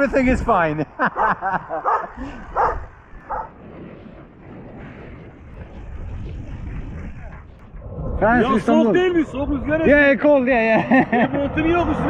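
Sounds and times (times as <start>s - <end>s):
dogs barking: 1.1s - 3.6s.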